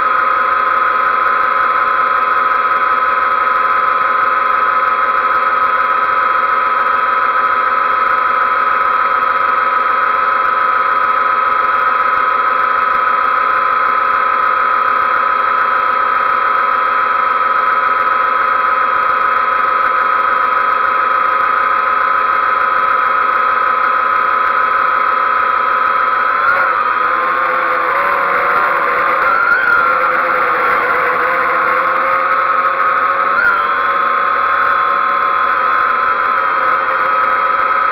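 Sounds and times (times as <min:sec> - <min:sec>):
drone propellers whining: 0:21.6 - 0:37.9.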